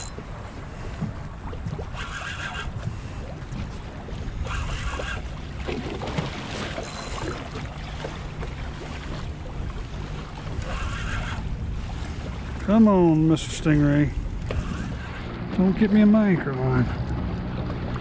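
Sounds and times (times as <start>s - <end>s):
fishing reel whirring: 0.0s - 0.3s, 1.8s - 2.8s, 4.2s - 5.5s, 6.6s - 7.6s, 10.6s - 11.5s, 14.4s - 15.3s
wind on microphone: 0.0s - 7.7s, 8.7s - 16.1s
water lapping at boat hull: 0.0s - 18.0s.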